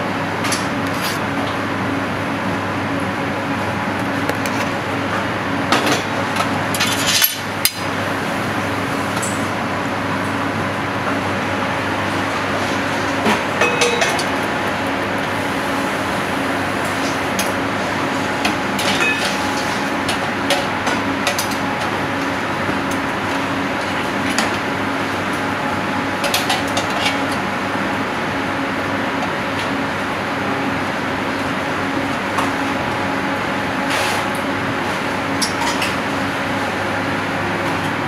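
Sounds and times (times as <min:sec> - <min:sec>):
kitchen ventilation hum: 0:00.0 - 0:38.0
metal utensil clinking on plate: 0:13.6 - 0:14.2.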